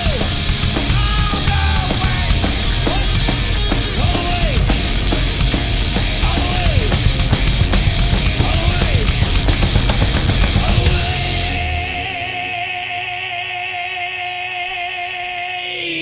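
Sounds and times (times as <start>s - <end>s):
bass guitar: 0.0s - 14.8s
distorted electric guitar: 0.0s - 16.0s
drums: 0.0s - 16.0s
held high guitar note: 9.2s - 15.1s.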